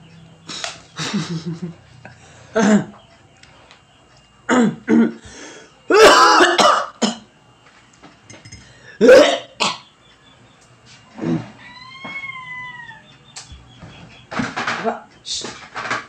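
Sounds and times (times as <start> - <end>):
man coughing: 4.5 - 5.2, 5.9 - 7.2, 9.0 - 9.8.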